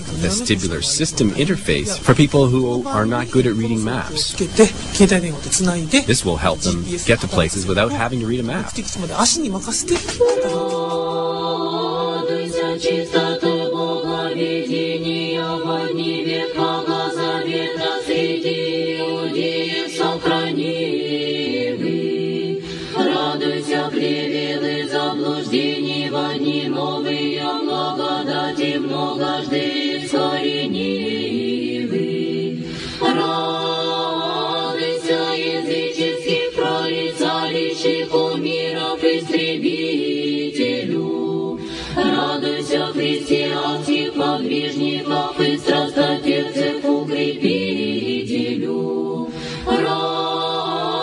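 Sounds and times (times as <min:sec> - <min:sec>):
low held drone note: 0:00.0 - 0:18.4
choir singing a chant: 0:00.0 - 0:51.0.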